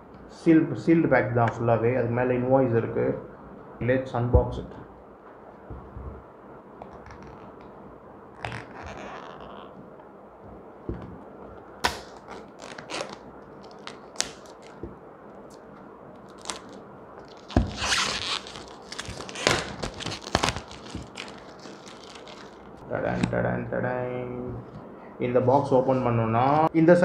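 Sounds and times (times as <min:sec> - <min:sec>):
plastic shrink-wrap crinkling: 0:11.9 - 0:14.9, 0:16.2 - 0:22.8.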